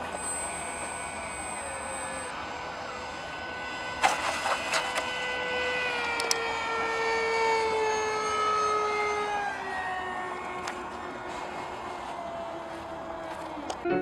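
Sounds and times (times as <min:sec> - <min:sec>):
electric motor and propeller whining: 0:00.0 - 0:14.0
sharp clicks: 0:06.0 - 0:06.4.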